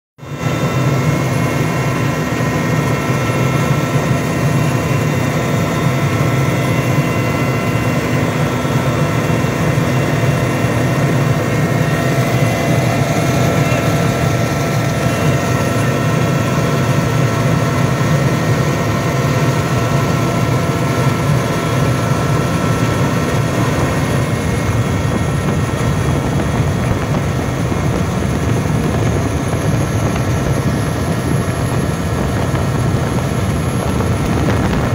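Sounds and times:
aircraft cabin drone: 0:00.2 - 0:34.9.

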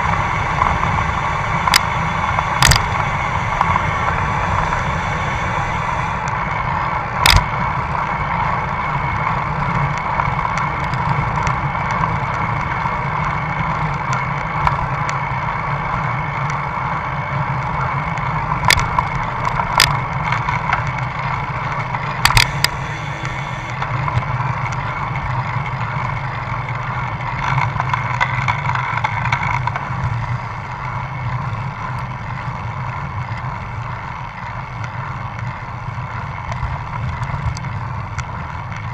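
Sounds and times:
wind over microphone: 0:00.0 - 0:13.1
tyres rushing on asphalt: 0:00.0 - 0:38.9.

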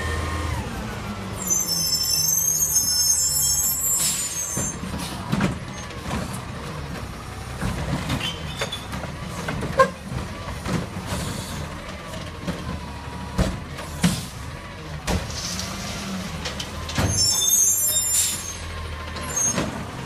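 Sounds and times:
cart and recyclables clattering: 0:04.0 - 0:20.0.

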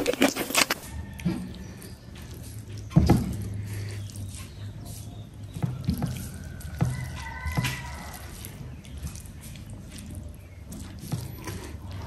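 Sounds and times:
mouth clicks and smacks: 0:00.0 - 0:02.9
wet eating sounds: 0:00.0 - 0:12.0.

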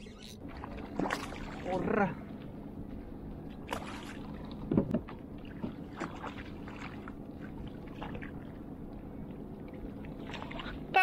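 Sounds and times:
water lapping against hull: 0:00.0 - 0:11.0
thump on hull: 0:04.7 - 0:05.8.

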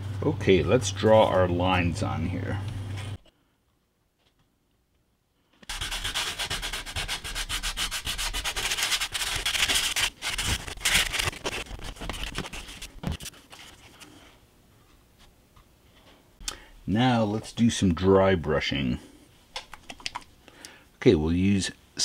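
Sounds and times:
hand tool scratching on card: 0:05.7 - 0:12.9.

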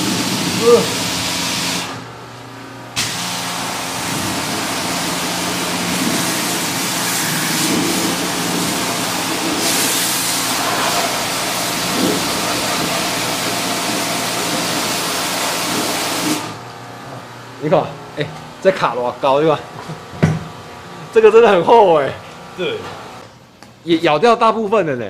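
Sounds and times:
pressure washer water jet hissing: 0:00.0 - 0:02.1, 0:03.0 - 0:16.6
pump motor humming: 0:00.0 - 0:17.1.

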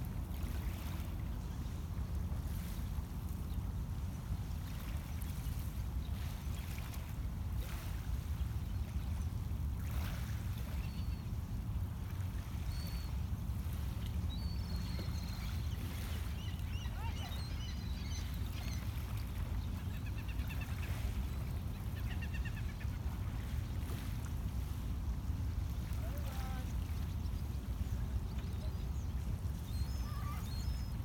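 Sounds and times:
low rumble of wind and water: 0:00.0 - 0:31.0
faint bird chirps and whistles: 0:10.7 - 0:11.3, 0:12.6 - 0:13.3, 0:14.3 - 0:19.0, 0:28.4 - 0:31.0.

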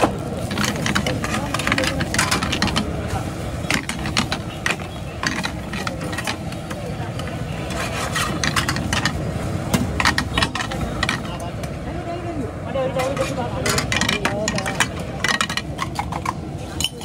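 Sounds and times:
gas burner flame rushing: 0:00.0 - 0:11.8
metal spatula scraping a pan: 0:07.5 - 0:09.2.

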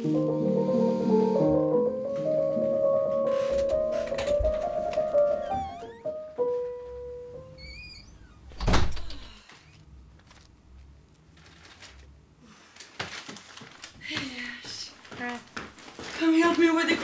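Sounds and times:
soft keyboard music: 0:00.0 - 0:07.6
door shutting with heavy thunk: 0:08.5 - 0:09.3.

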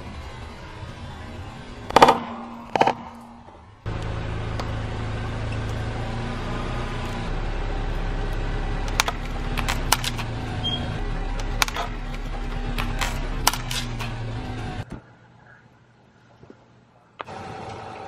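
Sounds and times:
car engine humming: 0:00.0 - 0:14.9
plastic cracking under tyre: 0:08.9 - 0:10.3, 0:11.4 - 0:14.1.

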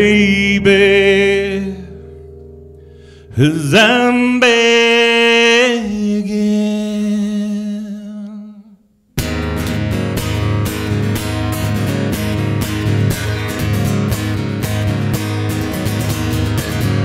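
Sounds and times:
man singing a held note: 0:00.0 - 0:02.3, 0:03.1 - 0:08.8
acoustic guitar strumming: 0:00.0 - 0:08.5, 0:09.2 - 0:17.0.

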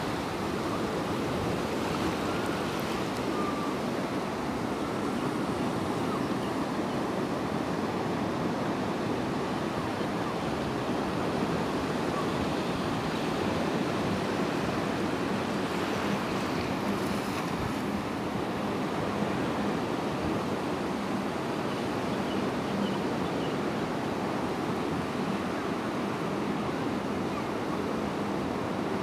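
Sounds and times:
small waves washing on beach: 0:00.0 - 0:22.7.

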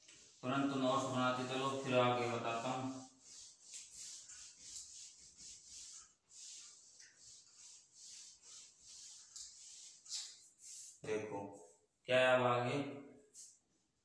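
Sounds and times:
duster rubbing on whiteboard: 0:00.0 - 0:11.0.

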